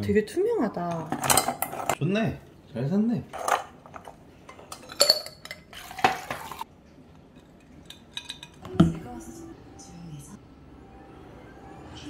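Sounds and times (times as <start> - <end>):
ice clinking against metal and glass: 3.3 - 6.6, 7.4 - 8.6.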